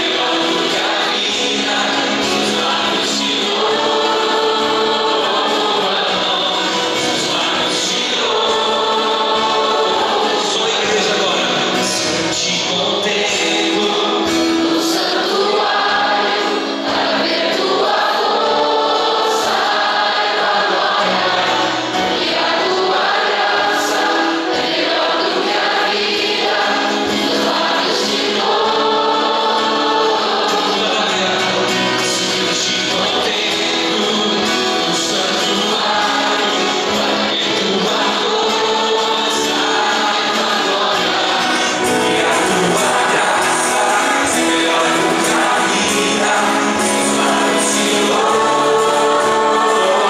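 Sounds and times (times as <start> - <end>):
man singing into a microphone: 0.0 - 16.6, 26.7 - 50.0
acoustic guitar strumming: 0.0 - 50.0
congregation singing along: 0.0 - 50.0.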